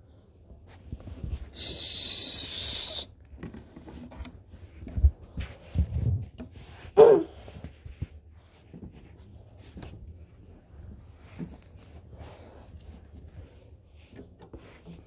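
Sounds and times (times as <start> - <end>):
loud steady hiss: 1.6 - 3.1
short high vocal sound: 7.0 - 7.4.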